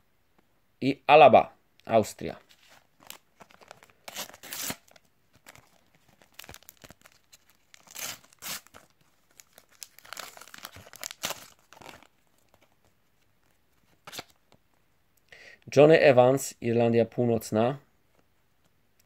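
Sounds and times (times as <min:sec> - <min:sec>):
wrapper tearing and crinkling: 0:02.5 - 0:12.7, 0:14.0 - 0:14.4.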